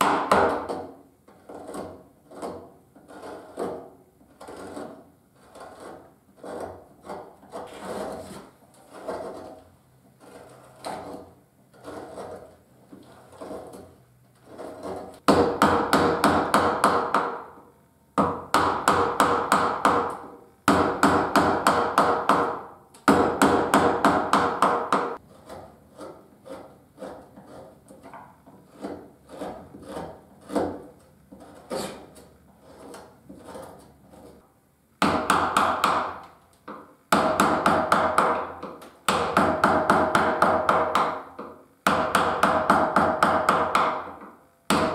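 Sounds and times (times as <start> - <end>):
paring cuts in wood: 28.7 - 34.4.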